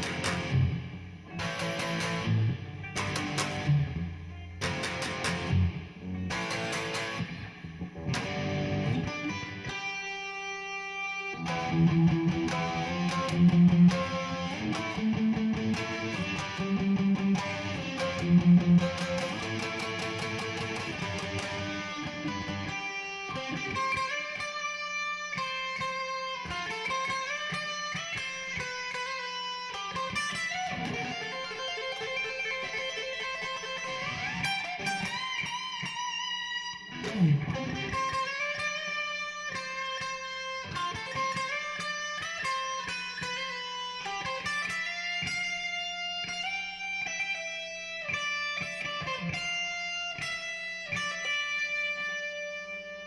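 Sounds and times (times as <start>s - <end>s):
electric guitar with crunch tone: 0.0s - 53.0s.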